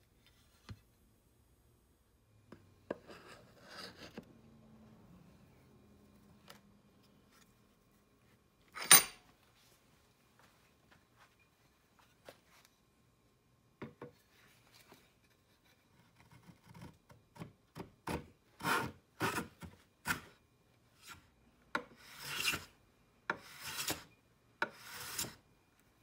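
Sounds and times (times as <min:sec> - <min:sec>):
hand plane cutting wood: 0:18.6 - 0:19.5, 0:22.0 - 0:22.7, 0:23.3 - 0:24.0, 0:24.6 - 0:25.4.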